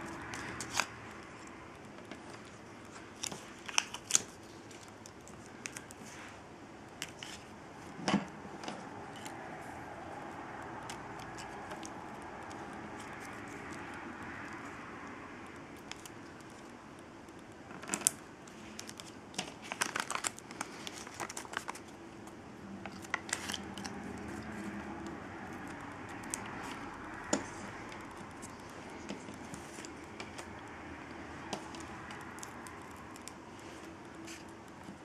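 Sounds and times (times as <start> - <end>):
paper crinkling and rustling: 0.0 - 6.4, 17.7 - 30.8, 31.5 - 35.0.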